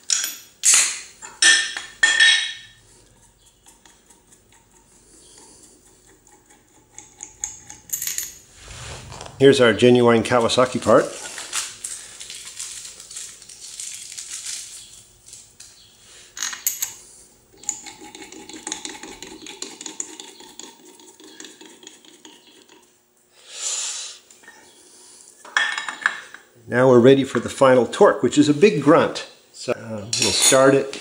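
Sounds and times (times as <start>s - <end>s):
rustling handling noise: 8.6s - 15.8s.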